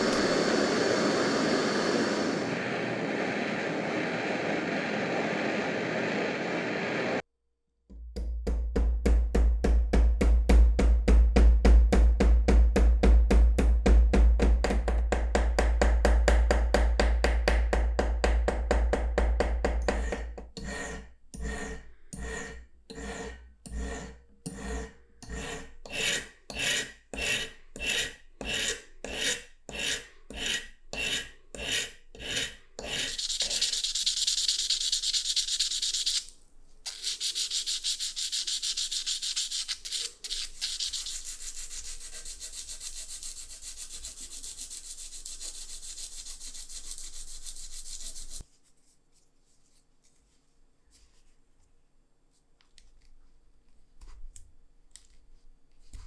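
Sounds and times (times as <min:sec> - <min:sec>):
steel rubbing on abrasive paper: 0:29.8 - 0:48.4.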